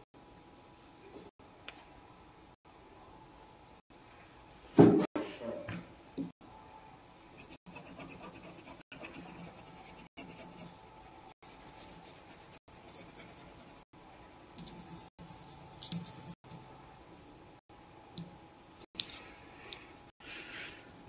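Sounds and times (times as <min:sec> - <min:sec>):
pencil scratching on paper: 0:07.4 - 0:10.7, 0:11.4 - 0:13.9.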